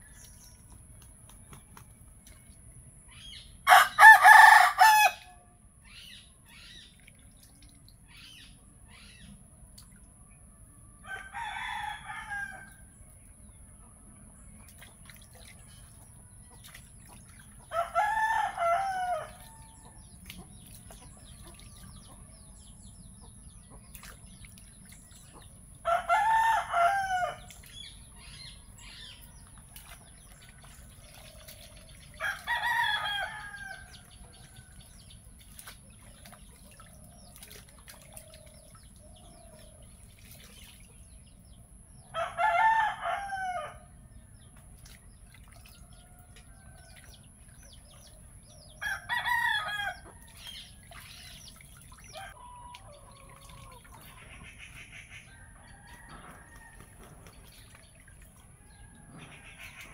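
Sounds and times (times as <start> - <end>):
rooster crowing: 3.7 - 5.4, 11.0 - 12.7, 17.7 - 19.7, 25.9 - 27.4, 32.2 - 33.8, 42.2 - 43.8, 48.8 - 50.0
water splashing: 14.5 - 22.2, 28.7 - 41.2, 44.7 - 54.8, 55.6 - 59.9.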